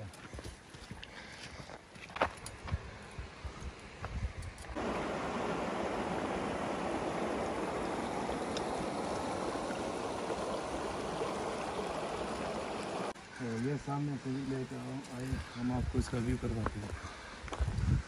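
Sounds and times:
stream gurgling over rocks: 0:04.7 - 0:15.0.

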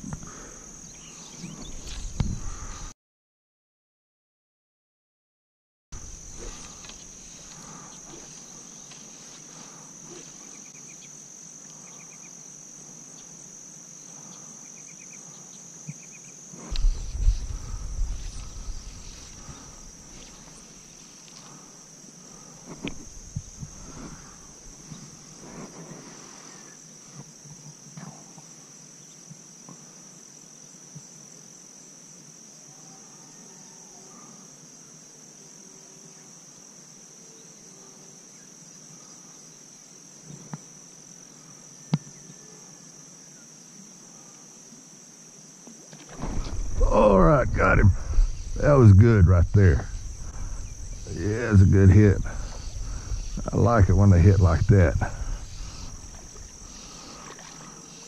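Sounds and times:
crickets chirping: 0:00.0 - 0:03.0, 0:06.0 - 0:58.0
low rumbling: 0:16.7 - 0:20.0, 0:46.2 - 0:56.8.

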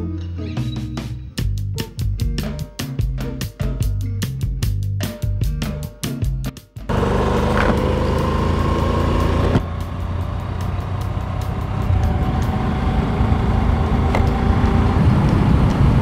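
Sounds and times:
motorcycle engine hum: 0:06.9 - 0:16.0
wind rush on microphone: 0:11.7 - 0:16.0.

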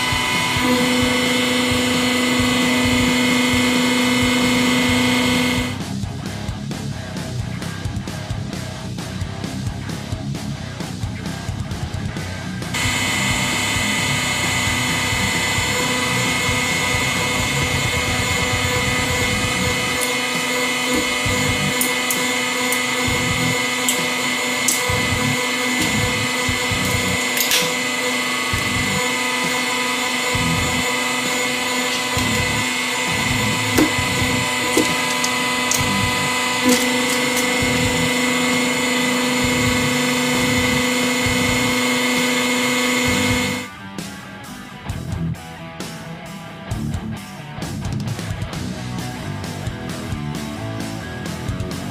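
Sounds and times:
hydraulic motor and pump whine: 0:00.0 - 0:06.0, 0:12.2 - 0:43.7.

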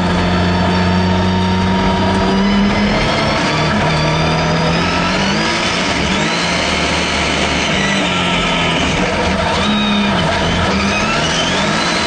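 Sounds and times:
rally car engine revving: 0:00.0 - 0:12.0.

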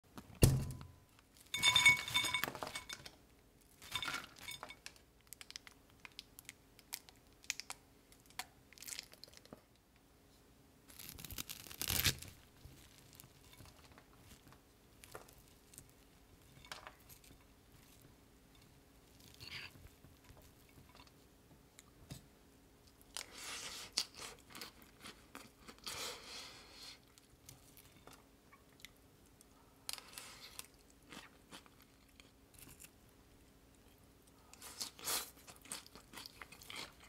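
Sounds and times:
shredded cabbage rustling: 0:10.9 - 0:14.4.

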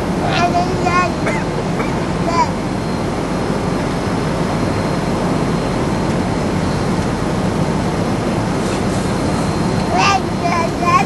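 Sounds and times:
jet cabin engine and airflow noise: 0:00.0 - 0:11.0
faint high steady tone: 0:09.1 - 0:11.0.

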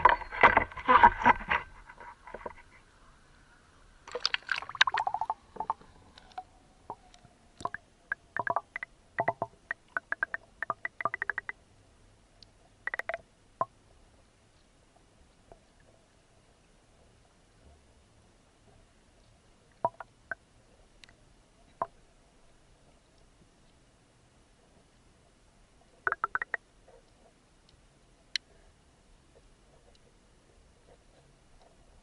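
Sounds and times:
underwater clicks and crackles: 0:00.0 - 0:02.8, 0:04.0 - 0:11.6, 0:12.4 - 0:13.8, 0:19.7 - 0:20.4, 0:21.0 - 0:22.0, 0:26.0 - 0:28.5
water splashing: 0:04.0 - 0:05.9.

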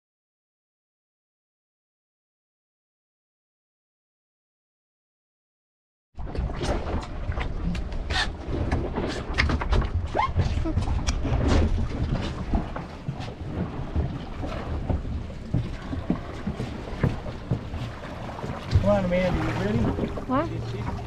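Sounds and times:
wind rumbling on microphone: 0:06.2 - 0:21.0.

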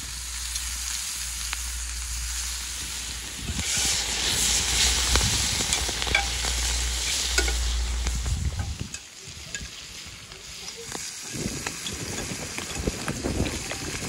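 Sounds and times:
chicken sizzling in butter: 0:00.0 - 0:14.0
metal spatula scraping pan: 0:03.6 - 0:09.0.

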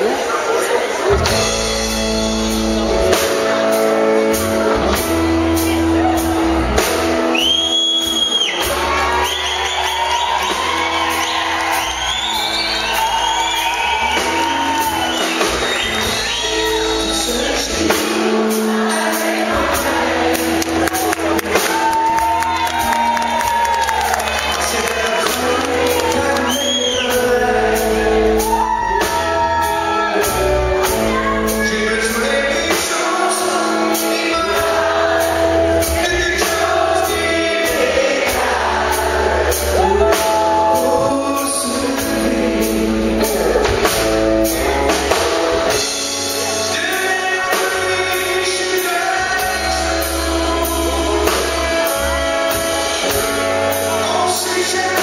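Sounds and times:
drums: 0:00.0 - 0:55.0
electric bass: 0:01.1 - 0:18.4, 0:19.5 - 0:55.0
man singing: 0:13.8 - 0:55.0.

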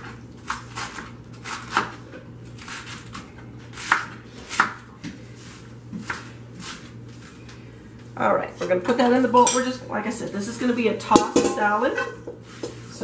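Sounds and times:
knife chopping lettuce on board: 0:00.4 - 0:02.0, 0:02.6 - 0:05.2, 0:05.9 - 0:06.9.

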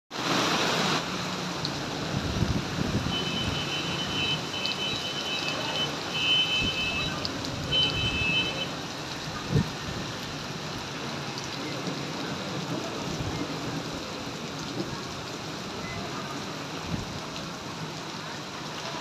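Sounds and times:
heavy rain on wet road: 0:00.1 - 0:19.0
wind gusting on microphone: 0:02.0 - 0:03.6, 0:09.4 - 0:10.2.

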